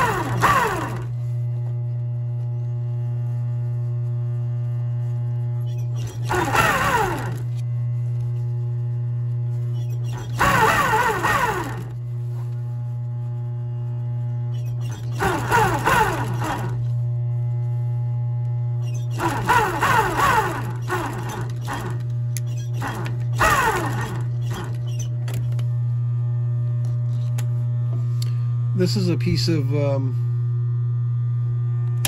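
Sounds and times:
sewing machine motor humming: 0.0s - 1.2s, 5.0s - 17.5s, 18.7s - 25.7s
sewing machine stitching leather: 0.0s - 1.2s, 5.6s - 7.6s, 9.7s - 12.0s, 14.5s - 16.9s, 18.8s - 25.6s.

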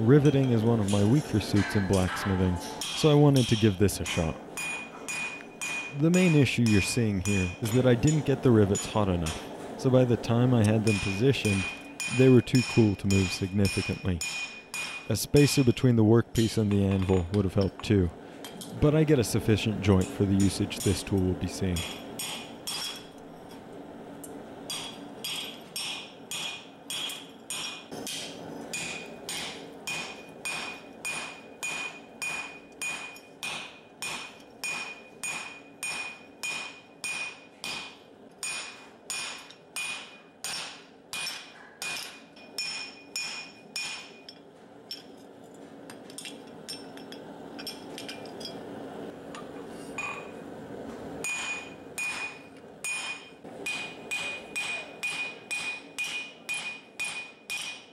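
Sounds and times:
hammer ringing on metal rivets: 0.4s - 9.0s, 10.6s - 17.9s, 24.7s - 45.0s, 51.2s - 57.9s.

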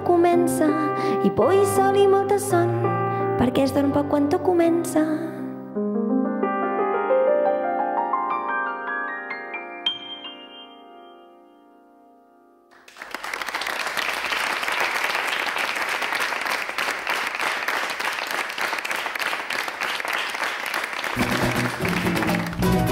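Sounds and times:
piano chord ringing: 5.8s - 12.7s
audience applause: 12.7s - 22.9s.

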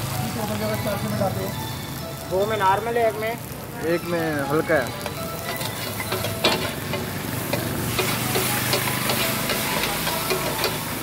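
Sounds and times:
food sizzling on a griddle: 0.0s - 11.0s
metal spatula scraping a griddle: 5.0s - 11.0s.

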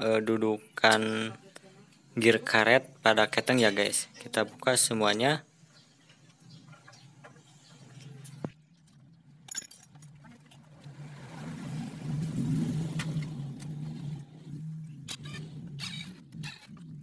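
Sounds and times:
engine hum: 5.6s - 17.0s.

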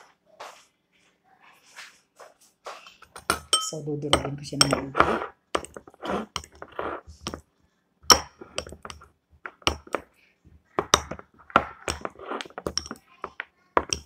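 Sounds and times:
utensil clinking against bowl: 3.0s - 7.4s, 8.0s - 10.1s, 10.8s - 14.0s
utensil scraping bowl: 3.0s - 7.4s, 8.0s - 10.1s, 10.8s - 14.0s.

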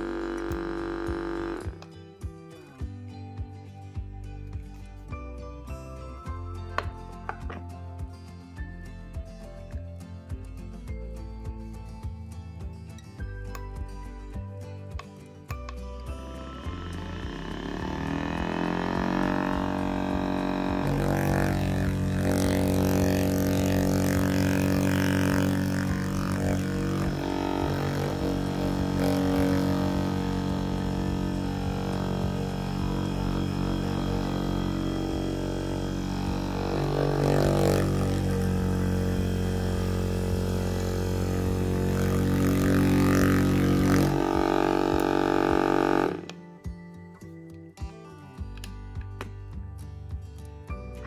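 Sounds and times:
massage gun buzzing: 0.0s - 1.9s, 16.1s - 46.4s.

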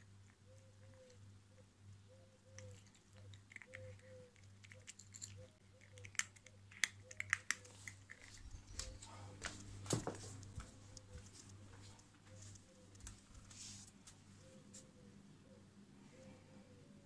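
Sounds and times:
steady low hum: 0.0s - 17.0s
cat crunching dry kibble: 2.6s - 8.8s.

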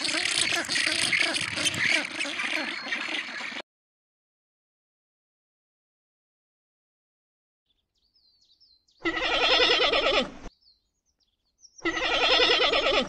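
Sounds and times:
camel bleating moan: 9.0s - 10.4s, 11.8s - 13.0s.

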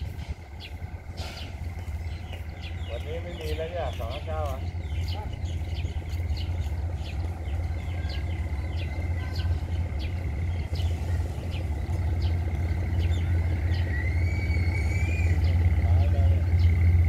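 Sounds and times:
birds chirping: 0.0s - 17.0s
diesel locomotive engine rumble: 0.0s - 17.0s
short rising whistle: 13.8s - 15.4s.

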